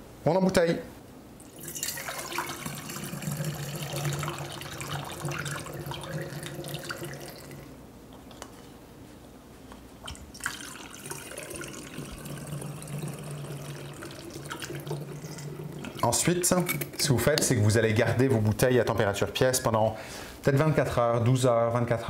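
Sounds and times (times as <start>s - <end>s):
liquid pouring into bottle: 1.4s - 7.8s, 10.0s - 16.2s.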